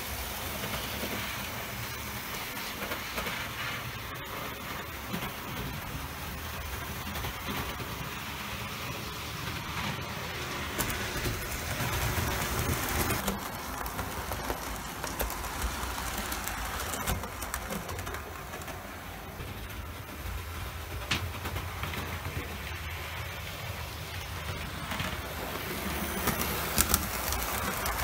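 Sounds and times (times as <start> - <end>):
wheels clicking over rail joints: 0.0 - 28.0
model train motor rumbling: 10.3 - 28.0.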